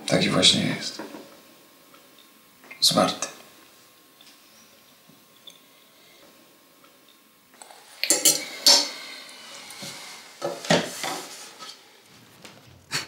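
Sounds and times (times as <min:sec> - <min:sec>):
cutlery clinking on plates: 0:08.0 - 0:09.1.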